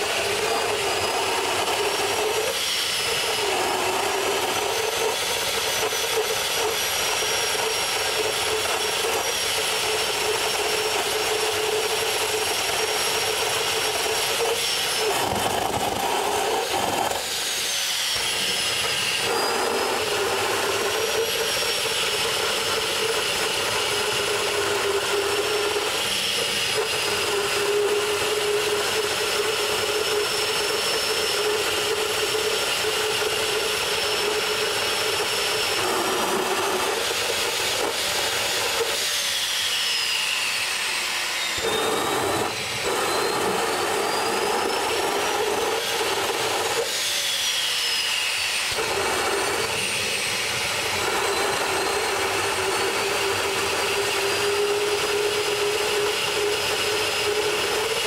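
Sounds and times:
high turbine whine: 0:00.0 - 0:58.0
jet engine rushing roar: 0:00.0 - 0:58.0.

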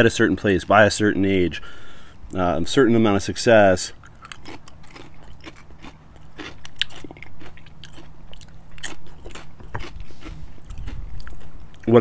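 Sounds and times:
person chewing food: 0:04.0 - 0:12.0.

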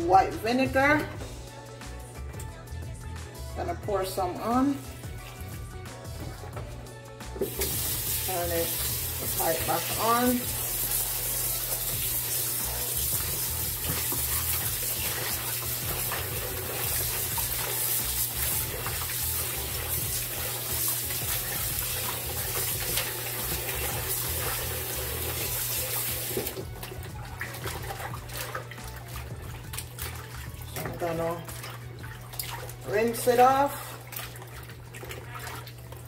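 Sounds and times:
hands washing meat in water: 0:04.8 - 0:36.0
tap running into bowl: 0:13.1 - 0:15.2.

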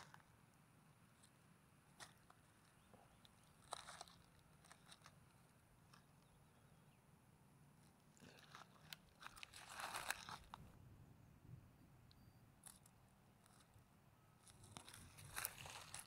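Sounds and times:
fingers scraping dry soil: 0:00.0 - 0:00.4, 0:01.1 - 0:06.6, 0:07.8 - 0:10.8, 0:14.4 - 0:16.0.

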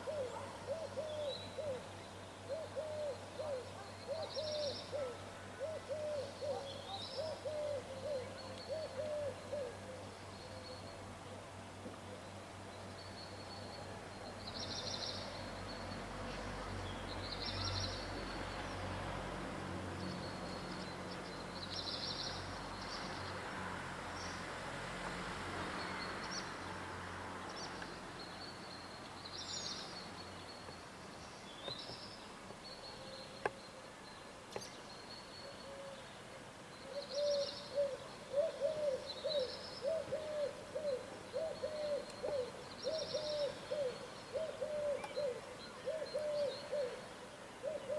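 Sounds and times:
bird low-pitched calls: 0:36.9 - 0:47.9.

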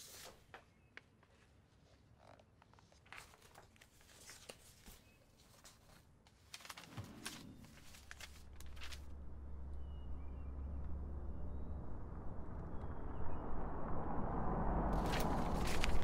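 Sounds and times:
paper sheets rustling: 0:00.0 - 0:00.6, 0:02.8 - 0:09.1, 0:15.0 - 0:16.0
low steady hum: 0:06.9 - 0:16.0.

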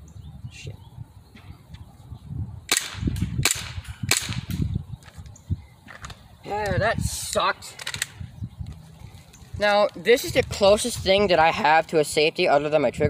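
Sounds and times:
airsoft pistol shots: 0:02.7 - 0:04.6.

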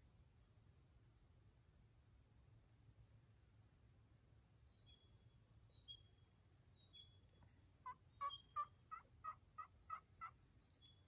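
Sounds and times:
turkey yelps: 0:07.8 - 0:10.4.

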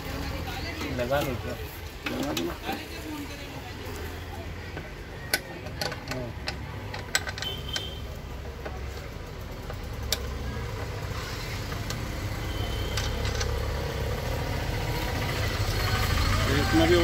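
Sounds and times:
vehicle engine idling: 0:02.7 - 0:17.0.

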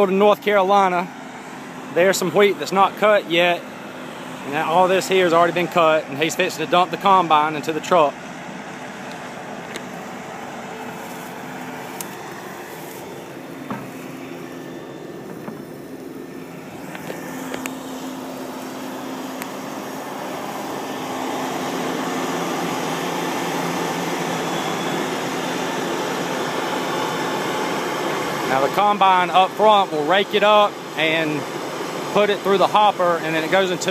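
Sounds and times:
combine harvester running: 0:00.0 - 0:33.9
faint knocks: 0:13.6 - 0:14.0.

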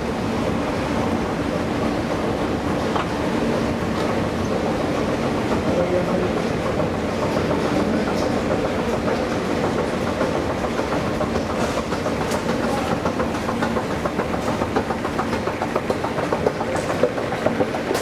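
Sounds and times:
escalator mechanical hum: 0:00.0 - 0:18.0
escalator steps clicking: 0:02.1 - 0:18.0.

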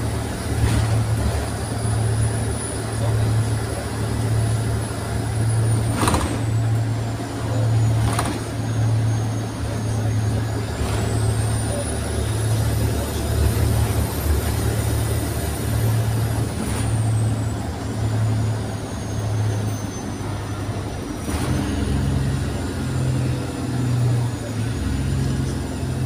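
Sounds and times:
bus diesel engine droning: 0:00.0 - 0:26.0.

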